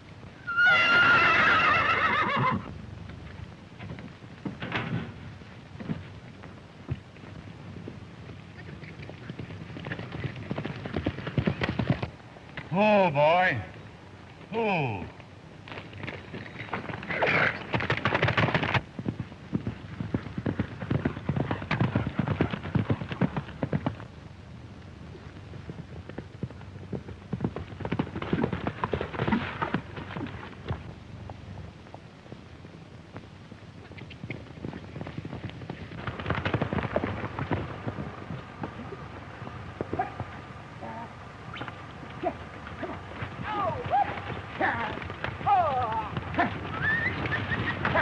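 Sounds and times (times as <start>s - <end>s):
horses galloping hoofbeats: 0.0s - 48.0s
horse neighing: 0.4s - 2.7s
hoof clops: 25.1s - 40.6s.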